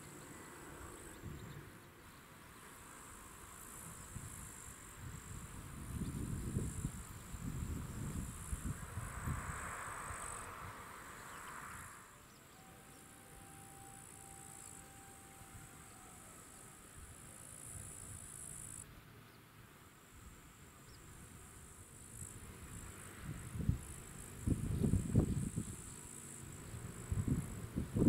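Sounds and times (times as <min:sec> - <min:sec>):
faint low wind rumble: 0:00.0 - 0:28.0
insects chirring in trills: 0:00.0 - 0:28.0.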